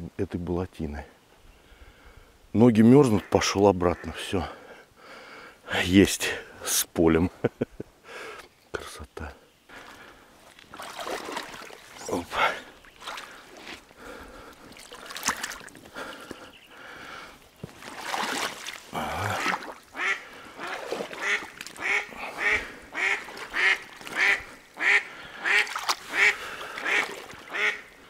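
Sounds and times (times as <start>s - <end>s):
water splashing from wading: 9.7s - 13.8s, 14.4s - 15.8s, 17.7s - 28.0s
duck quacking: 19.3s - 27.9s.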